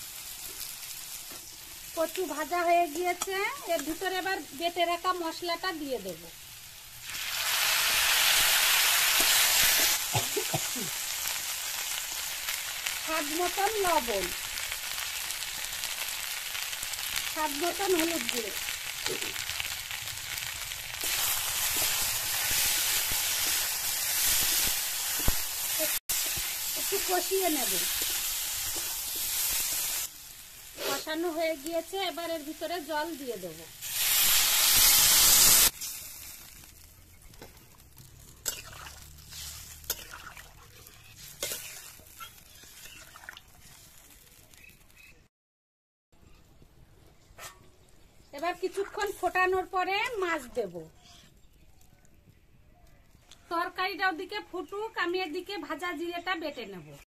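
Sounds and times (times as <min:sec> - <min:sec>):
food sizzling in hot oil: 0:00.0 - 0:45.2, 0:48.3 - 0:52.0
metal spatula scraping wok: 0:38.2 - 0:44.0.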